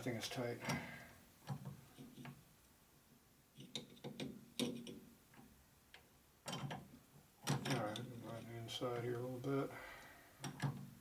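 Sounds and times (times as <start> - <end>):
metallic clicks and knocks: 3.6 - 8.2, 10.4 - 11.0.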